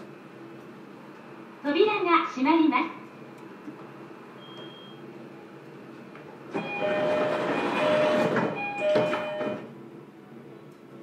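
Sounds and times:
train doors sliding shut: 6.4s - 9.7s
doors closing with a knock: 6.5s - 9.7s
two-note door chime: 6.6s - 9.6s.

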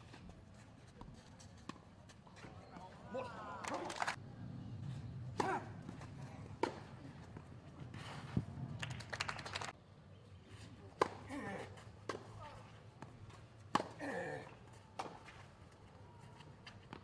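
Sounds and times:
open-air background: 0.0s - 17.0s
crowd clapping: 3.6s - 4.2s, 8.8s - 9.8s.

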